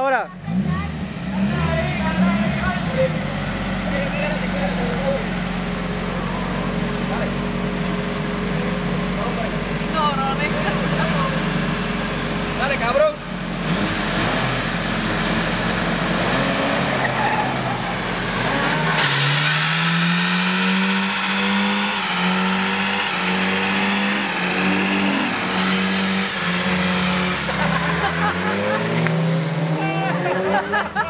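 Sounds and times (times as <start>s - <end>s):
car engine revving: 0.0s - 31.0s
tires squealing: 10.2s - 31.0s.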